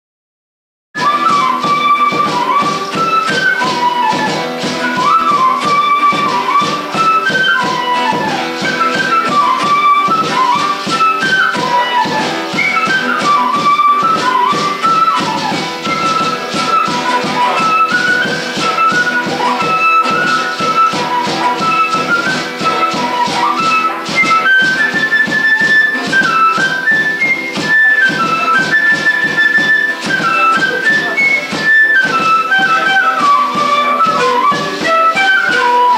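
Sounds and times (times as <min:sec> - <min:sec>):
flute melody: 0:01.0 - 0:35.9
strummed acoustic guitar: 0:01.0 - 0:35.9.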